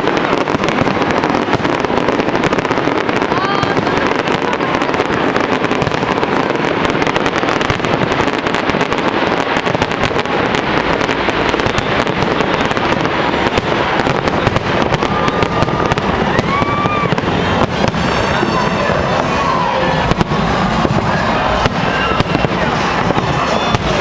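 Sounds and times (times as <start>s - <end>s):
fireworks bangs and crackles: 0.0s - 24.0s
fireworks whistling: 0.0s - 24.0s.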